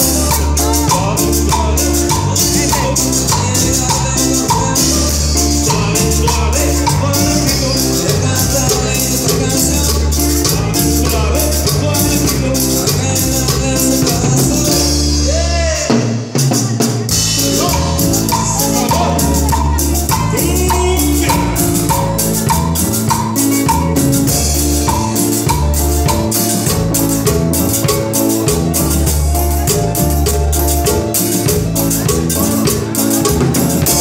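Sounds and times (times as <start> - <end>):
keyboard melody: 0.0 - 15.9, 17.0 - 34.0
repeating bass notes: 0.0 - 15.9, 17.1 - 34.0
hand percussion beat: 0.0 - 34.0.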